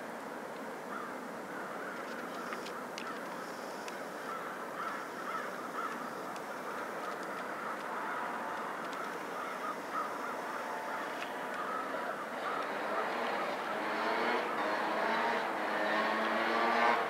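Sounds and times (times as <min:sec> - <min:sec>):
outdoor background noise: 0:00.0 - 0:17.0
crows cawing: 0:00.9 - 0:13.9.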